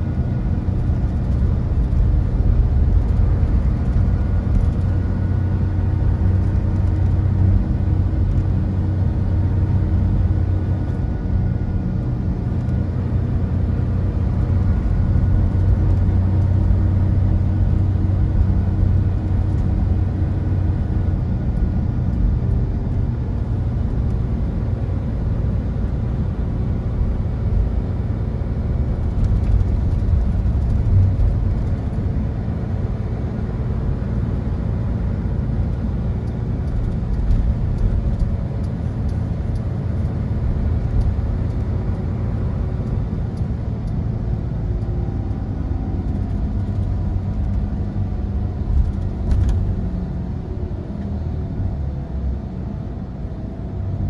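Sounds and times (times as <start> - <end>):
diesel engine hum: 0.0 - 54.0
road rumble: 0.0 - 54.0.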